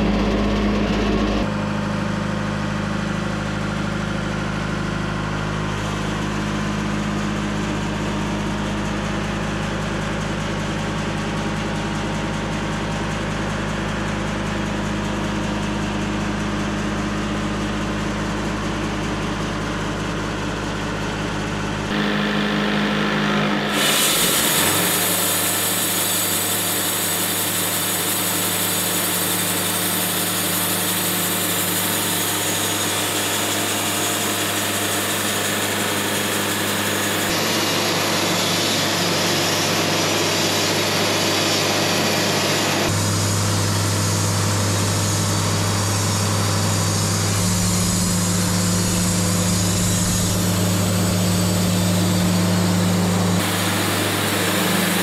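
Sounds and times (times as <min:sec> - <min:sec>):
engine hum idling: 0:00.0 - 0:23.8, 0:42.8 - 0:55.0
sawmill machinery sawing: 0:00.0 - 0:55.0.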